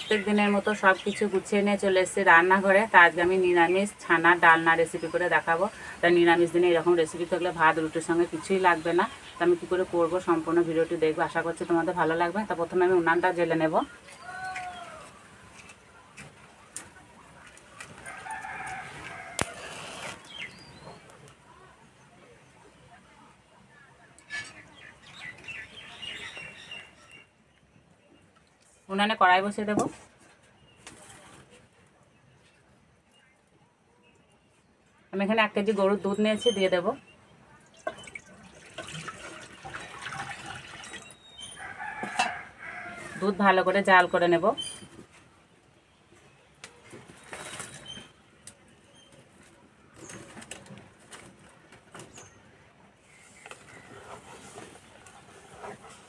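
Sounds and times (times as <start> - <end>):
rooster crowing: 18.0 - 19.8, 41.6 - 43.2.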